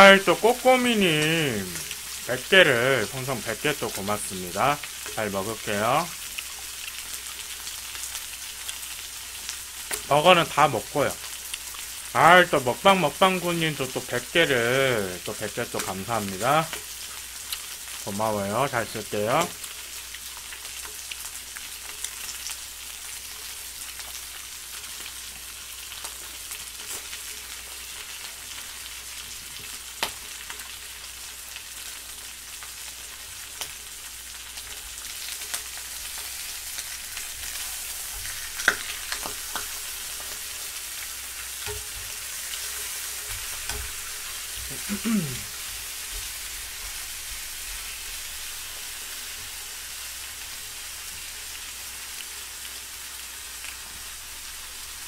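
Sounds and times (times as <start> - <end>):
meat sizzling in a frying pan: 0.0 - 55.0
metal tongs clicking on pan: 38.3 - 40.4, 41.6 - 42.1.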